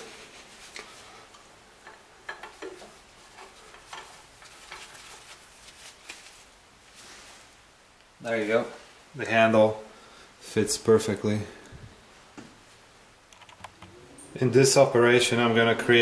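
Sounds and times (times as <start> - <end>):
light metal clicks and rubbing: 1.8 - 5.2.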